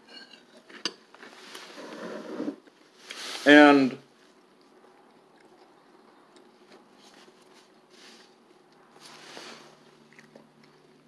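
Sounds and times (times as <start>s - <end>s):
soft breaths and mouth sounds: 4.1s - 11.0s.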